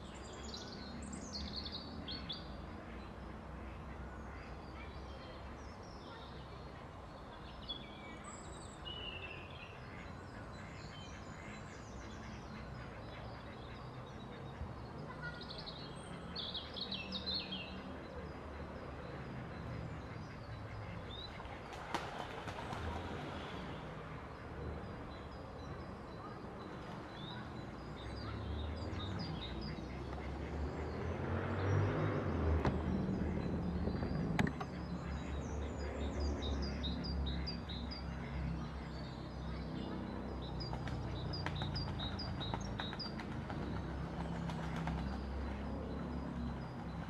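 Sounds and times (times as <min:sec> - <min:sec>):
ducks splashing on water: 0:20.8 - 0:24.2, 0:40.8 - 0:45.6.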